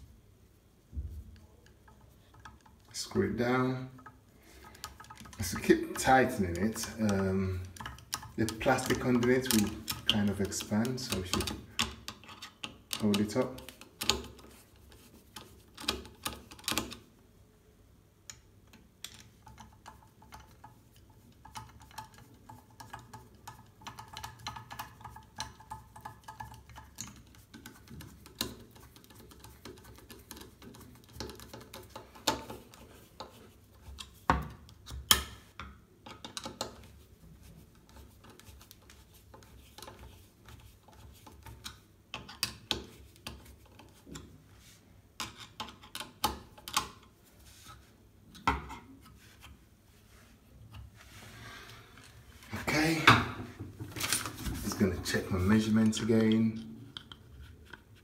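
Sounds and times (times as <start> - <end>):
screwdriver clicking and scraping: 4.7 - 17.0.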